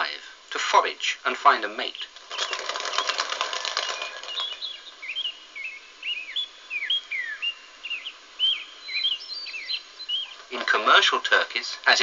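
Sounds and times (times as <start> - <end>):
small birds chirping: 1.5 - 12.0
turkey wings flapping: 2.2 - 5.0.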